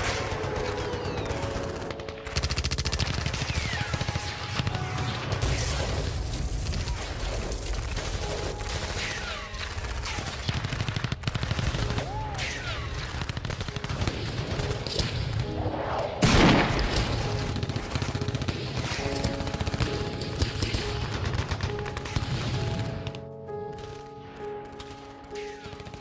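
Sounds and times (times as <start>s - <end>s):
rapid gunfire: 0.0s - 15.5s, 16.2s - 26.0s
loud blast: 16.2s - 17.3s.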